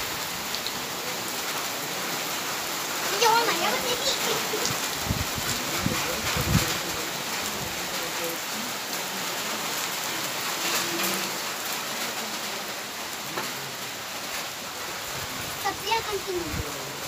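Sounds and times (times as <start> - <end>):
rain on concrete: 0.0 - 17.0.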